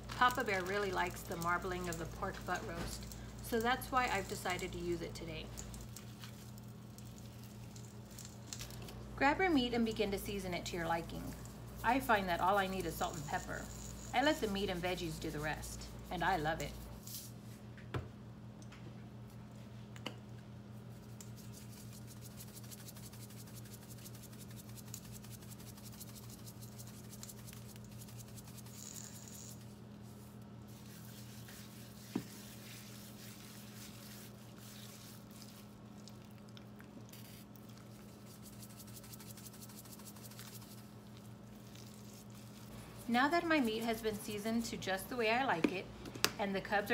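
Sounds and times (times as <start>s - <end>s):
hands rubbing meat on plastic wrap: 0.1s - 8.7s, 20.9s - 29.4s, 30.0s - 36.5s, 37.1s - 44.0s
seasoning grinding and shaking: 0.3s - 8.8s, 10.8s - 17.3s, 21.2s - 36.2s, 37.1s - 44.0s.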